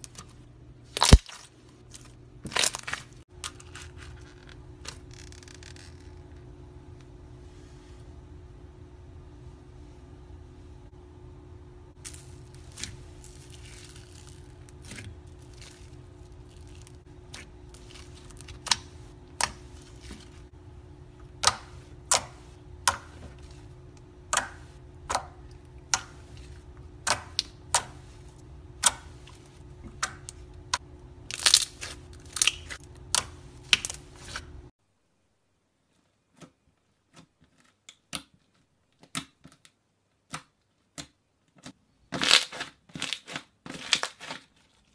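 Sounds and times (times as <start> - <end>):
steady low hum: 0.0 - 34.7
slime popping and crackling: 1.0 - 1.5, 12.0 - 20.2, 31.3 - 34.0.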